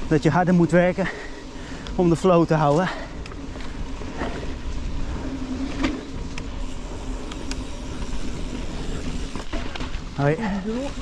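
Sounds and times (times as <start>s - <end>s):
bike tyres rumbling on dirt: 0.0s - 11.0s
wind: 0.0s - 11.0s
bike clicks and knocks: 5.5s - 10.1s.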